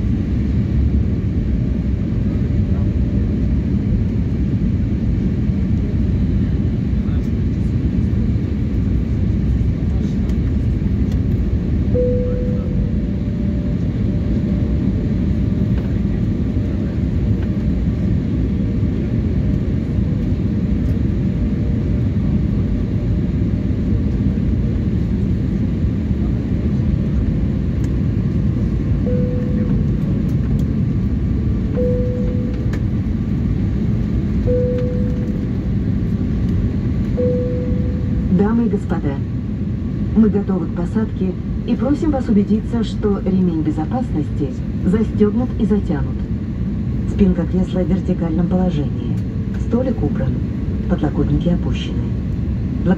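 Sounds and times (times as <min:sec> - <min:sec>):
jet engine and airflow noise: 0:00.0 - 0:52.9
faint high tones: 0:12.0 - 0:13.2, 0:29.0 - 0:29.9, 0:31.7 - 0:32.7, 0:37.2 - 0:38.2.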